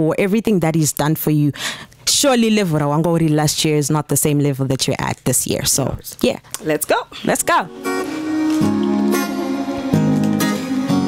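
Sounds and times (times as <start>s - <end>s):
instrumental backing track chords: 7.4s - 11.0s.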